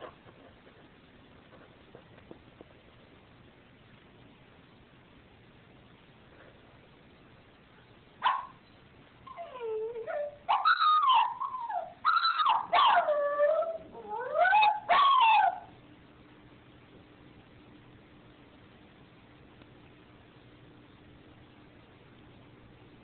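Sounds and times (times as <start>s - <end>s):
small dog whining and crying: 9.3s - 15.7s.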